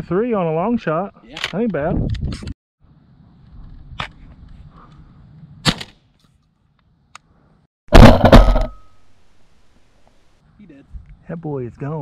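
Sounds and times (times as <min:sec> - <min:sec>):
wind rumble on microphone: 0:01.7 - 0:05.6.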